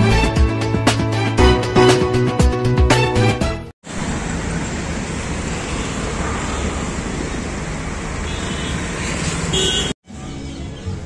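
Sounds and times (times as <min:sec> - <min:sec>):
road traffic noise: 0:03.2 - 0:11.0.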